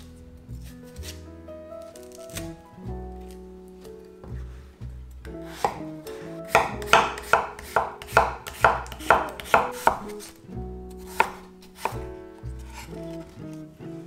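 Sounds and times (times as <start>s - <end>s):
knife slicing on cutting board: 6.5s - 10.4s, 11.0s - 12.0s.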